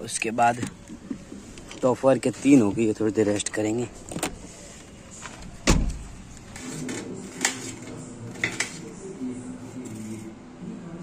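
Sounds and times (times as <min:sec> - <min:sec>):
car door shutting: 0:05.2 - 0:06.1.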